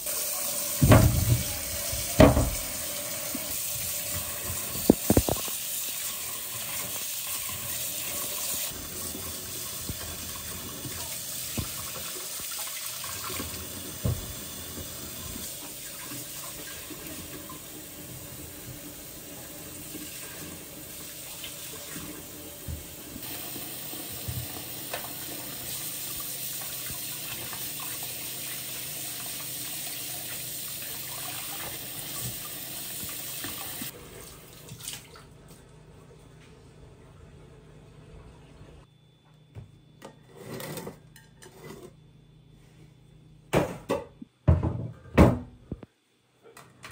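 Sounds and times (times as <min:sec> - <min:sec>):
tap running into steel sink: 0:00.8 - 0:02.8.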